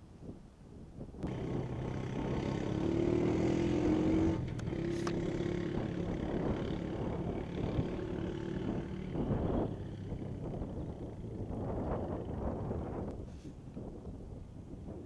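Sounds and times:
quad bike engine running: 1.2 - 13.1.

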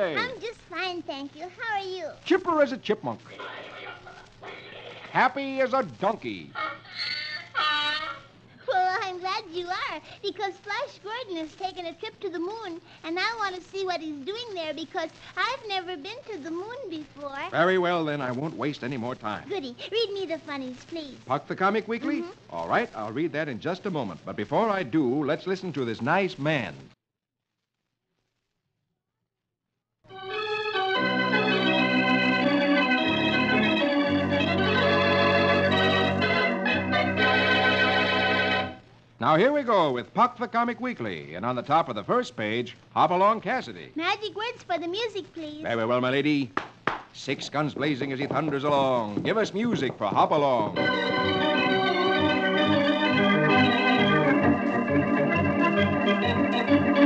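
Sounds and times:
organ playing held chords: 30.1 - 38.8, 50.7 - 57.0.

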